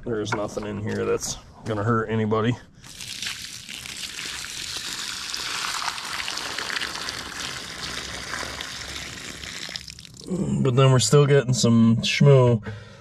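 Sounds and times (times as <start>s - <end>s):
water running and splashing: 2.9s - 10.3s.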